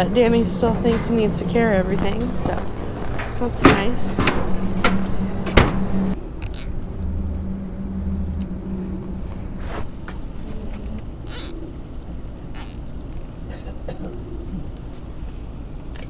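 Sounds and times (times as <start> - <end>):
footsteps on metal gangway: 0.0 - 6.2
low steady hum: 0.0 - 16.0.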